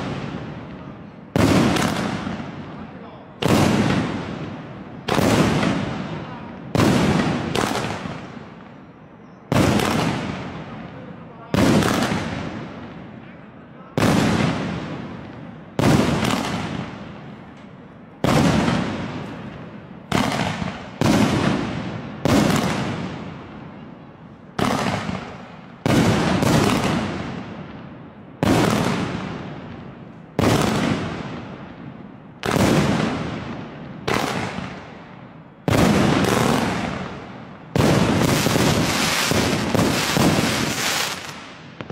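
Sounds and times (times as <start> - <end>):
fireworks bangs: 0.0 - 41.9.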